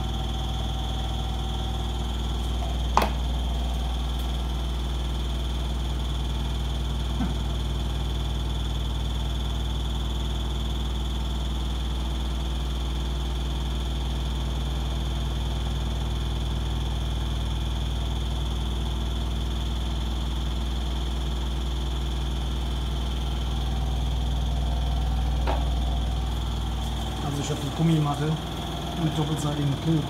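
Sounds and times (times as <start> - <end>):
washing machine spinning: 0.0 - 30.0.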